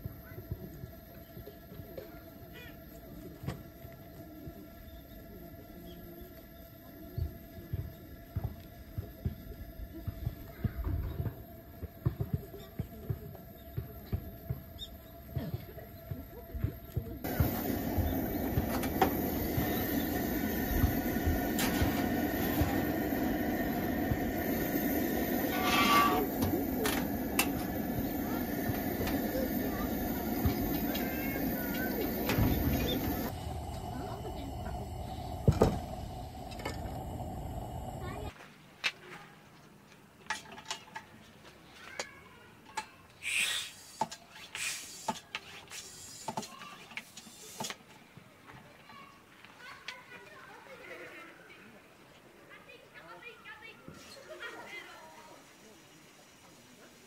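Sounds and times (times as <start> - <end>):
camp stove burner running: 13.5 - 38.3
short hissing rubs: 17.3 - 33.3, 43.2 - 47.8.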